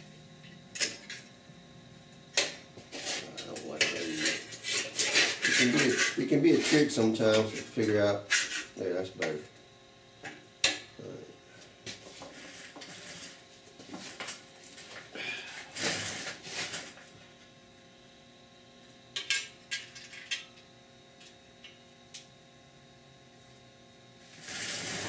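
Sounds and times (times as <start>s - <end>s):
faint steady hum: 0.0s - 25.0s
metal clamps clinking and scraping: 3.8s - 6.3s.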